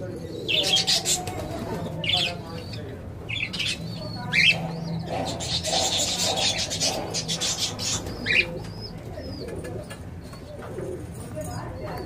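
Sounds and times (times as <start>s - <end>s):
lovebird scratchy chattering: 3.3s - 10.0s.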